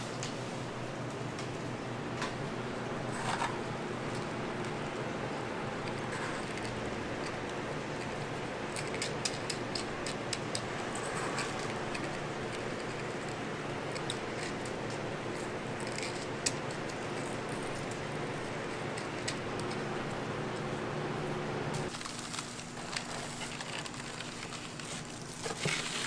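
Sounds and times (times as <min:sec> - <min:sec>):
steady background hum: 0:00.0 - 0:26.0
crumbs rattling in plastic tub: 0:21.9 - 0:26.0.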